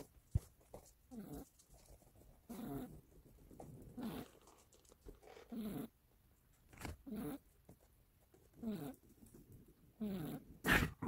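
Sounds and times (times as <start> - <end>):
cat snoring: 2.5 - 2.9, 4.0 - 4.4, 5.3 - 6.0, 7.0 - 7.4, 8.6 - 9.0, 10.0 - 11.0.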